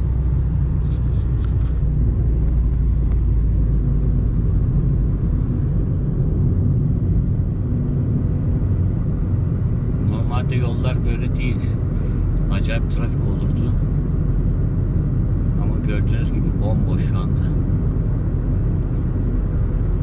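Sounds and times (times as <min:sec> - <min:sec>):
car engine and tyre rumble: 0:00.0 - 0:20.0.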